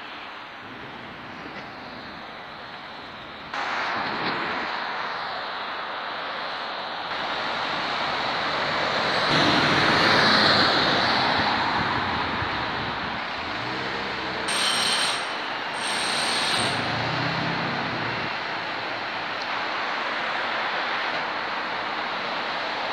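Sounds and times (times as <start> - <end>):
road traffic rushing: 0.0 - 22.9
vehicle passing: 16.7 - 18.6.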